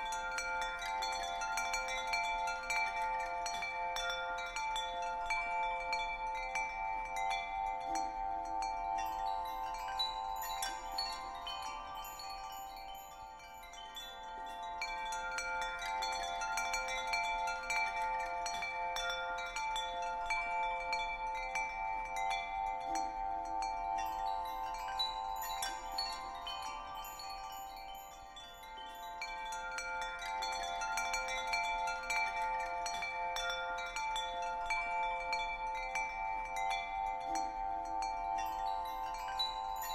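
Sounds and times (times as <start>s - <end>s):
chimes ringing: 7.4s - 18.6s, 19.3s - 39.9s.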